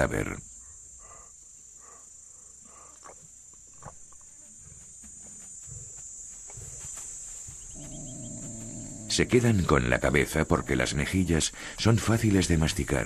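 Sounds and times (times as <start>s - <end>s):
insects chirring: 0.0s - 13.0s
soft low rumbles: 3.8s - 11.2s.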